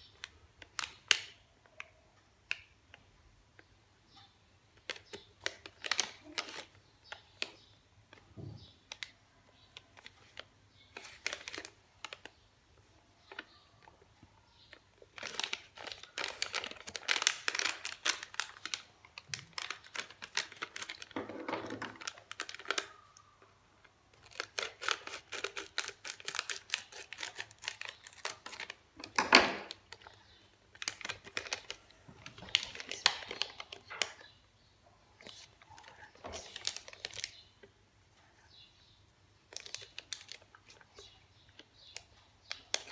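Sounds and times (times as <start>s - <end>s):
plastic wrappers crinkling: 4.8s - 7.7s, 9.8s - 12.4s, 13.2s - 23.5s, 24.1s - 34.4s, 35.2s - 37.4s, 39.5s - 42.9s.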